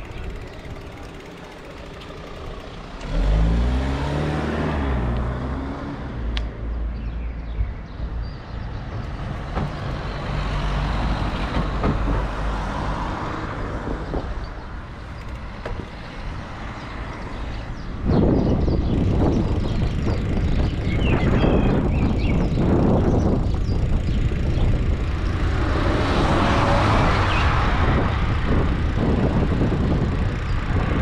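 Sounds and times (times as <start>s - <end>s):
vehicle engine accelerating: 0.0s - 6.7s, 22.1s - 31.0s
traffic rumble: 0.0s - 31.0s.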